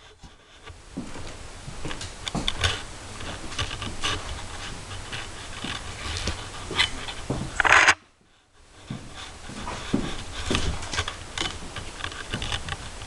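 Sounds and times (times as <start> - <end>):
footsteps: 0.0 - 8.0, 8.8 - 12.9
camera handling noise: 7.6 - 8.0.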